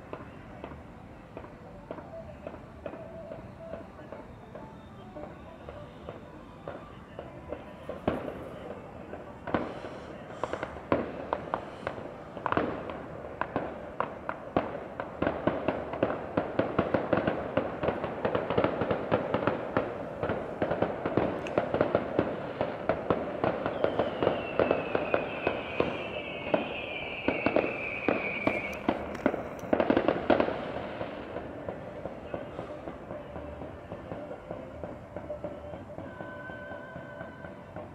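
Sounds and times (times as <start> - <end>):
fireworks bangs: 0.0 - 37.9
fireworks crackling and popping: 0.0 - 37.9
descending firework whistle: 1.4 - 13.7, 21.1 - 37.9.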